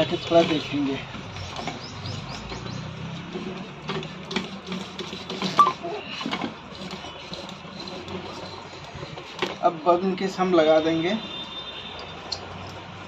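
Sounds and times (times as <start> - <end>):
clicks and knocks from handling: 0.4 - 9.6.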